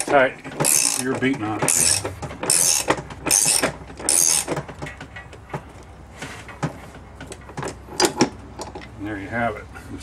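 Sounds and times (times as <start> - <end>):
ratchet wrench clicking: 0.0 - 1.1, 1.7 - 4.6
metallic clicks and knocks: 0.0 - 9.0.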